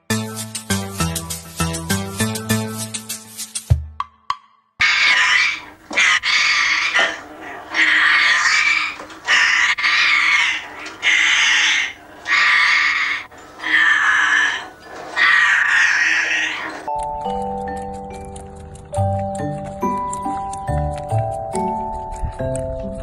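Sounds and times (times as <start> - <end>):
parrot squawking harshly: 4.8 - 16.8.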